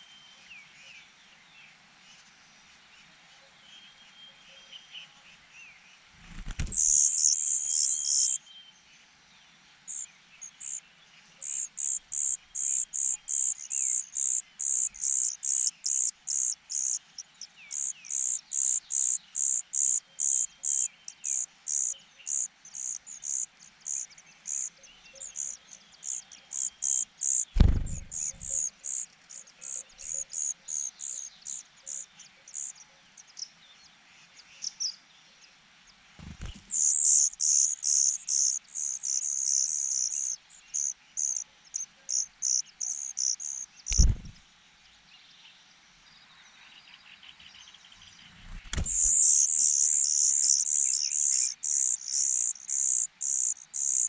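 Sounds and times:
insect chirping: 6.6 - 8.4, 11.4 - 32.8, 36.7 - 44.3, 48.8 - 54.0
low thumps: 27.6 - 28.3.

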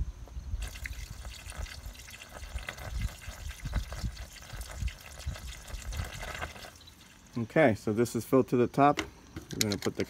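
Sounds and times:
liquid pouring and splashing: 0.6 - 7.4.

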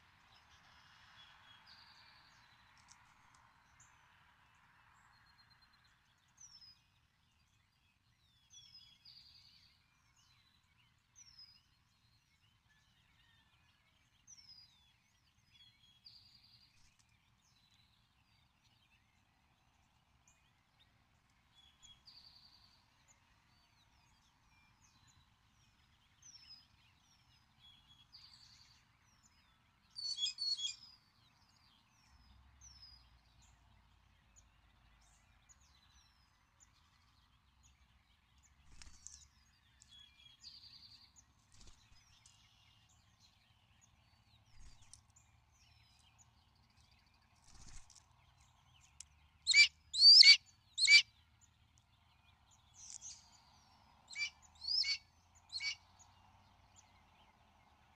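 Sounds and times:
small bird chirps and whistles: 30.0 - 30.8, 49.5 - 51.0, 54.1 - 55.8
loud sharp bird calls: 49.5 - 51.0, 54.1 - 55.8.

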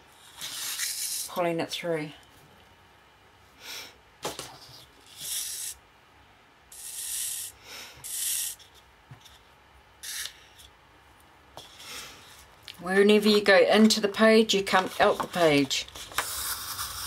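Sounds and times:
cardstock rustling: 13.3 - 16.6.

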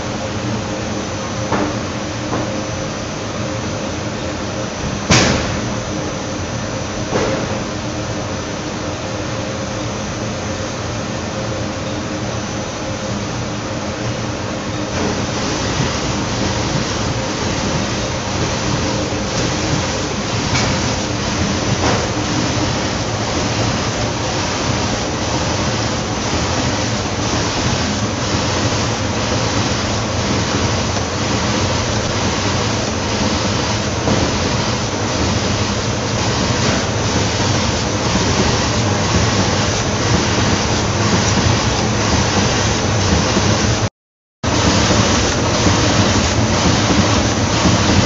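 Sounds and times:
machine rushing noise: 14.9 - 48.0.

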